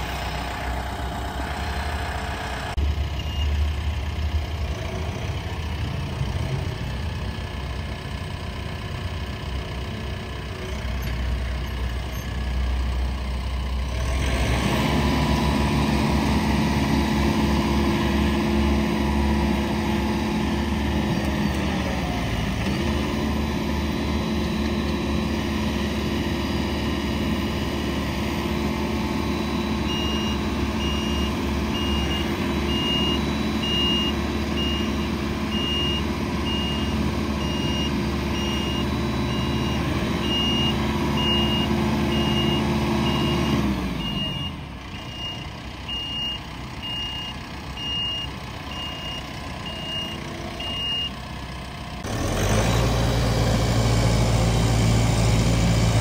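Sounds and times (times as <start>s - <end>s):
tractor diesel engine running: 0.0s - 56.0s
reversing alarm beeping: 3.0s - 3.7s, 23.0s - 51.2s.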